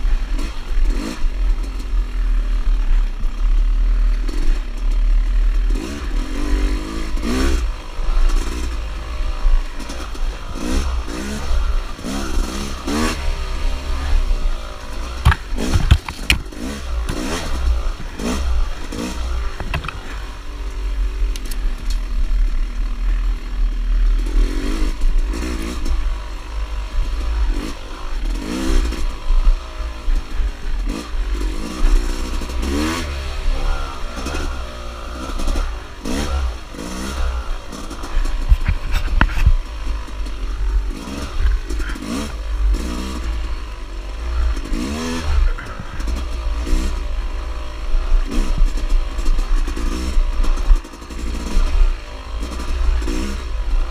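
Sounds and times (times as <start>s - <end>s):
dirt bike engine revving: 0.0s - 53.9s
bike clattering over rough ground: 15.1s - 18.4s, 19.0s - 20.2s.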